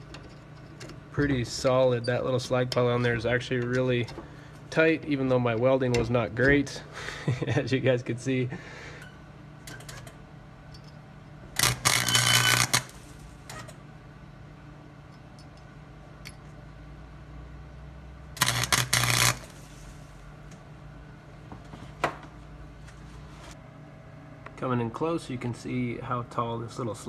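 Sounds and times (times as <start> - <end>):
welder arc crackling: 11.6 - 13.6, 18.3 - 19.7.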